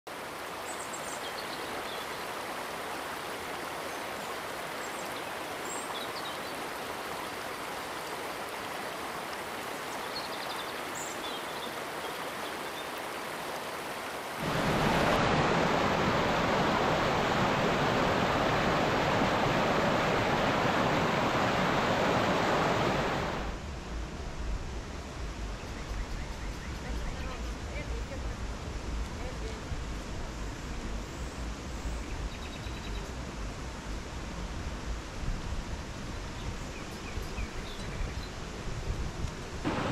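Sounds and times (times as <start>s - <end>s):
stream water rushing: 0.1s - 23.6s, 33.1s - 39.9s.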